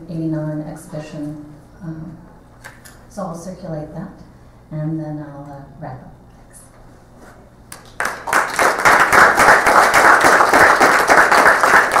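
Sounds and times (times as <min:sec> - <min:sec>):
audience applauding: 0:07.7 - 0:12.0.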